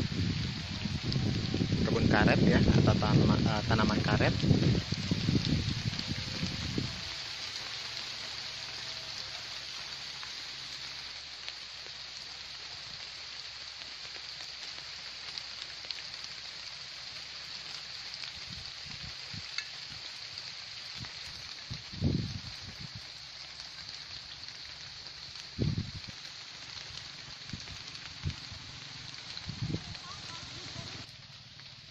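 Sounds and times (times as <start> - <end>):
light rain falling on leaves: 0.0 - 31.9.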